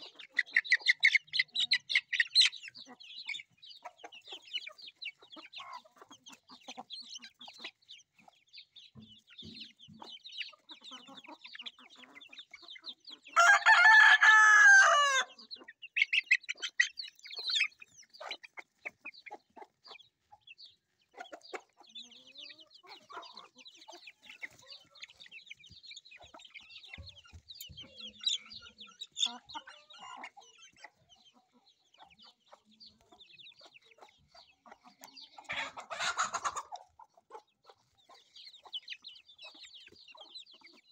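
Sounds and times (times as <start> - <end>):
chicks peeping and chirping: 0.0 - 40.9
rooster crowing: 13.4 - 15.4.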